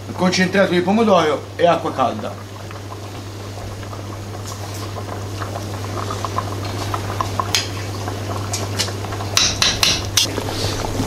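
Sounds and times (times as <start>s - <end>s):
pot bubbling at the boil: 0.0s - 11.0s.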